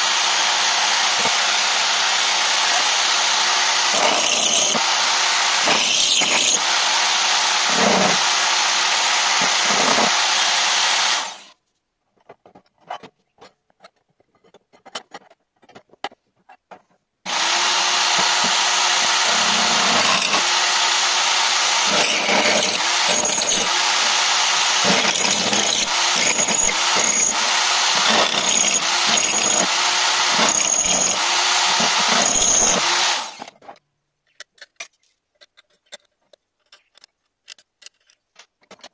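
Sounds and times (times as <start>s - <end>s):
drill press drilling metal: 0.0s - 11.5s, 17.3s - 33.5s.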